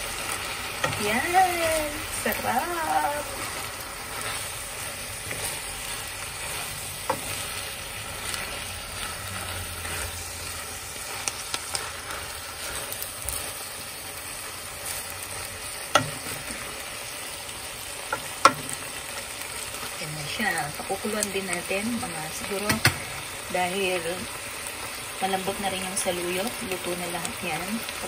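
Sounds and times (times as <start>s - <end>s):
vegetables sizzling in a wok: 0.0s - 28.0s
spatula knocking on pan: 15.9s - 16.4s, 22.7s - 23.0s.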